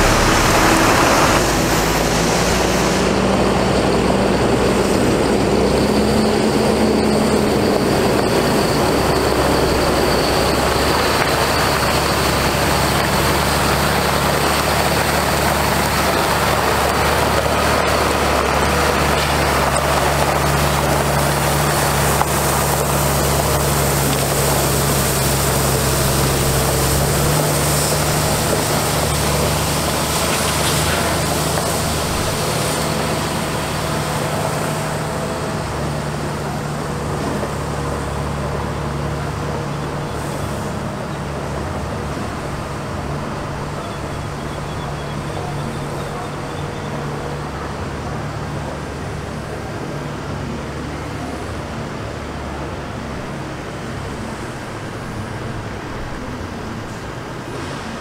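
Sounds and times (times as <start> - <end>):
water spraying hiss: 0.0 - 3.7, 18.2 - 35.4
diesel truck engine running: 0.0 - 58.0.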